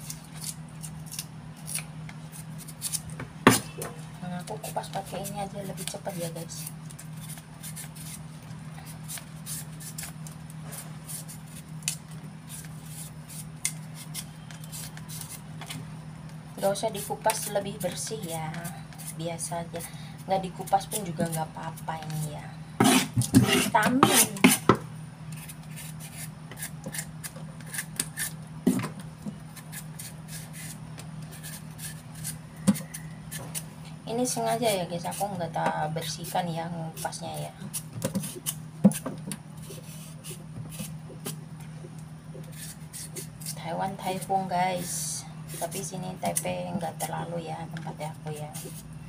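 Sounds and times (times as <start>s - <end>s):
knife scraping vegetable skin: 0.0s - 3.1s, 5.0s - 8.2s, 8.8s - 15.4s, 18.6s - 19.5s, 20.4s - 24.7s, 25.3s - 28.4s, 29.5s - 33.7s, 36.0s - 39.0s, 39.6s - 41.4s, 42.4s - 47.0s
low steady hum: 0.0s - 49.0s.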